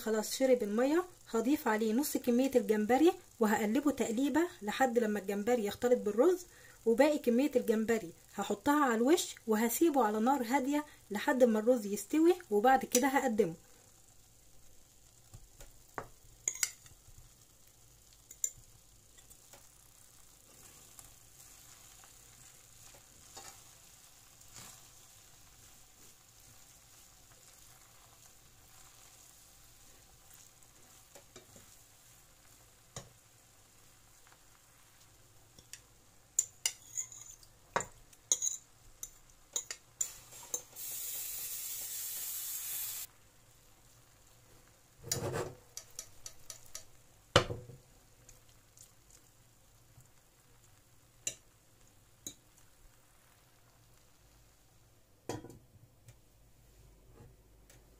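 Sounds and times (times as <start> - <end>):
sizzling hiss: 0.0 - 55.2
spoon scraping a pot: 36.4 - 37.5, 38.3 - 40.8, 45.0 - 46.9.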